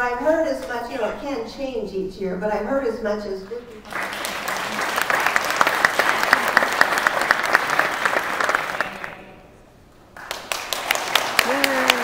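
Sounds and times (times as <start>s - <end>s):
audience applauding: 3.8s - 9.4s, 10.2s - 12.0s
loud sharp claps close by: 3.9s - 9.2s, 10.2s - 12.0s.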